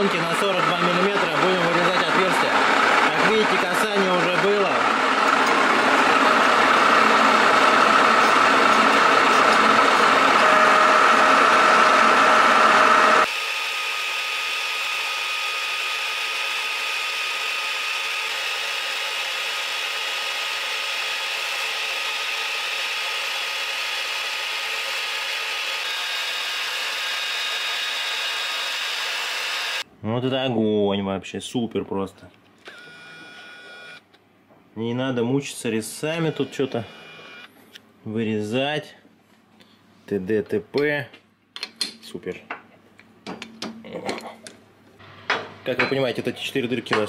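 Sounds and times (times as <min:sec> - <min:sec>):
lathe hole saw cutting metal: 0:00.0 - 0:29.8, 0:35.9 - 0:37.4
lathe whine: 0:00.0 - 0:29.8, 0:35.9 - 0:37.5.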